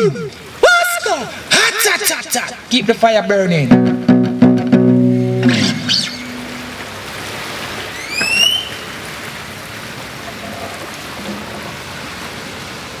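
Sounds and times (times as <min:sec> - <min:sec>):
sea waves on rocky shore: 0:00.0 - 0:03.2, 0:05.4 - 0:13.0
acoustic guitar note: 0:03.7 - 0:07.0
rising whistle-like call: 0:05.4 - 0:06.8, 0:07.9 - 0:09.0.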